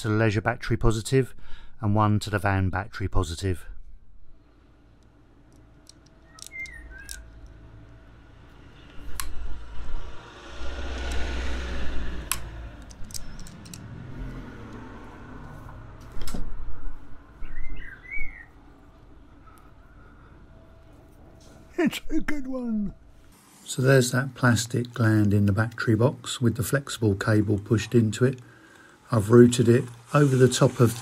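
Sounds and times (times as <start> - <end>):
bird chirps: 6.2 - 7.4, 17.4 - 18.6.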